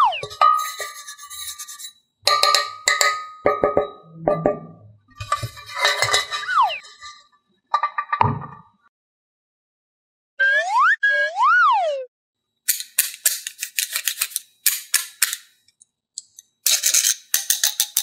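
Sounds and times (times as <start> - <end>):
falling whistle-like glide: 0.0 - 0.4, 6.4 - 6.9, 10.4 - 12.1
pitched tone rising and falling: 0.0 - 0.4, 10.4 - 12.1
metal muffin tin clinking: 0.2 - 4.0, 5.2 - 7.2, 12.7 - 15.5, 16.2 - 18.0.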